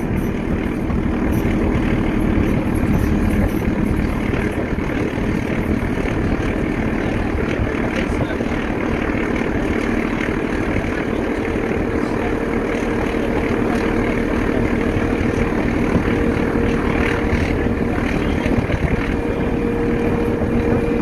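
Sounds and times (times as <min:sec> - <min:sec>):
diesel locomotive engine drone: 0:00.0 - 0:21.0
train rumble: 0:00.0 - 0:21.0.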